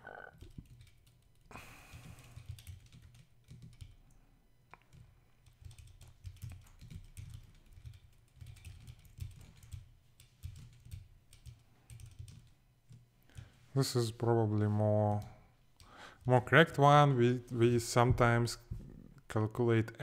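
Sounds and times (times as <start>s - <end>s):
typing on a keyboard: 0.2s - 4.2s, 4.8s - 13.5s.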